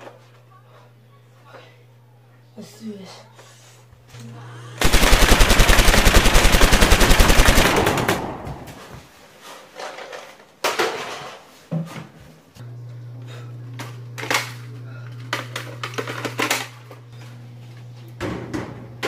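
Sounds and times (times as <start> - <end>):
rapid machine-gun fire: 4.8 - 8.9.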